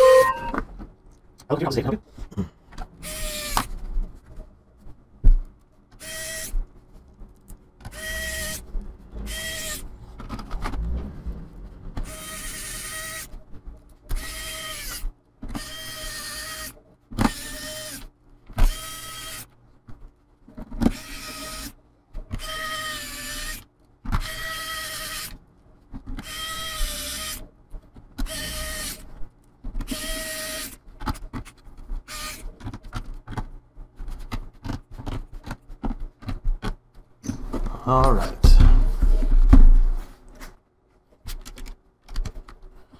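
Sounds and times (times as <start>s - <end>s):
electric screwdriver motor whine: 6.0s - 6.5s, 7.9s - 8.6s, 9.3s - 9.8s, 12.0s - 13.3s, 14.2s - 15.0s, 24.3s - 25.3s, 26.2s - 27.4s, 28.3s - 29.1s, 29.9s - 30.8s.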